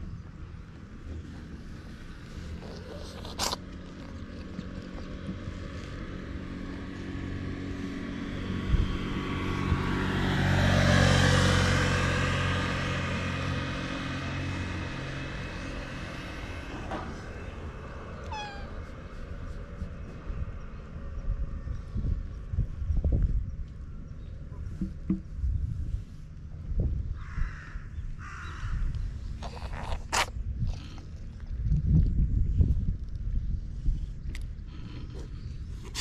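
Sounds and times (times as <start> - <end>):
motor scooter passing by: 4.5 - 21.1
cat meowing: 18.2 - 18.9.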